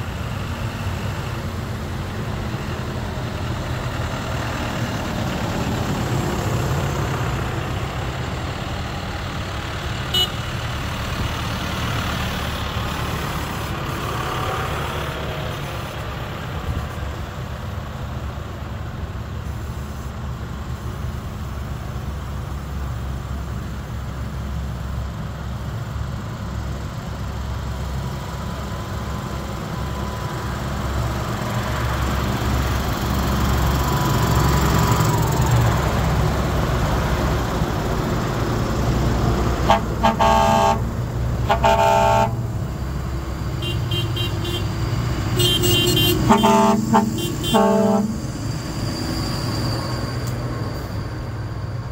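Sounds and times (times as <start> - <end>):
tractor engines rumbling: 0.0 - 51.9
horns honking: 10.1 - 10.6, 39.6 - 42.5, 43.6 - 44.8, 45.4 - 48.4
horn note dipping in pitch: 45.4 - 48.2.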